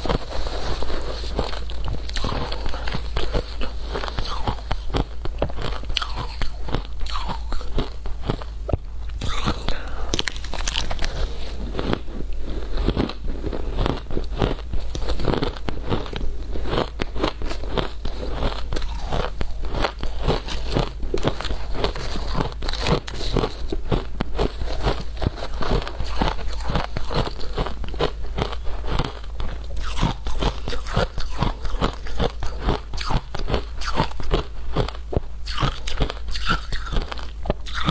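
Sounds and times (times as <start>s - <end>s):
shaved ice being crunched and chewed: 0.0s - 8.5s, 9.2s - 37.9s.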